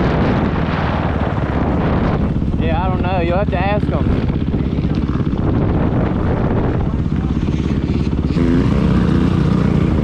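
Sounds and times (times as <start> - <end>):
dirt bike engine running: 0.0 - 10.0.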